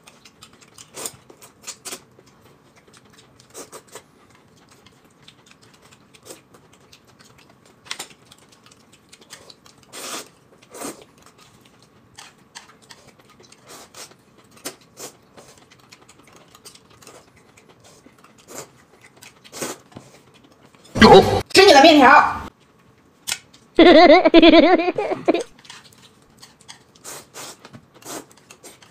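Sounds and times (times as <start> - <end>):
chewing smacks: 0.0 - 20.9
noodle slurping: 9.9 - 11.1.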